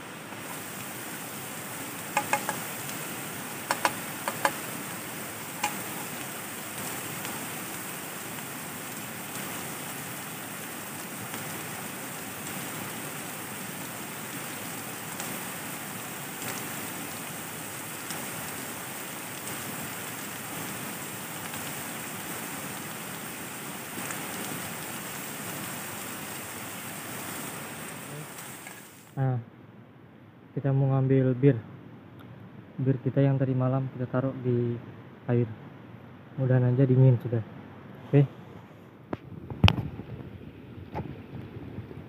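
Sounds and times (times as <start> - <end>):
steady rushing hiss: 0.0 - 29.2.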